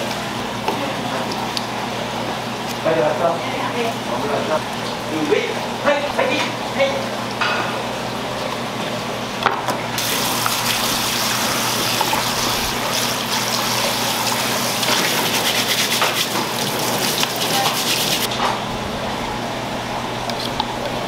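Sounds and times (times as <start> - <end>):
water gushing into plastic bowl: 10.0 - 18.3.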